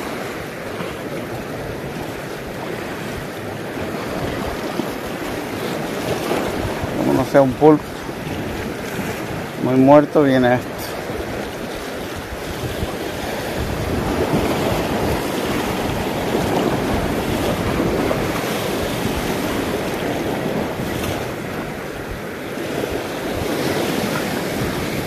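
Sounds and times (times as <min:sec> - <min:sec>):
surf breaking on rocky shore: 0:00.0 - 0:25.0
wind buffeting microphone: 0:00.0 - 0:25.0.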